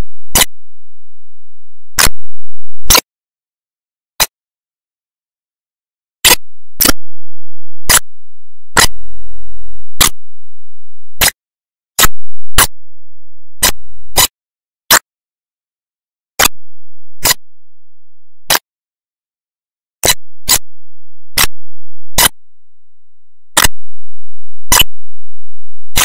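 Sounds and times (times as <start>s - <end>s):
sharp loud clicks: 2.0s - 3.0s, 12.0s - 12.8s, 13.6s - 14.3s.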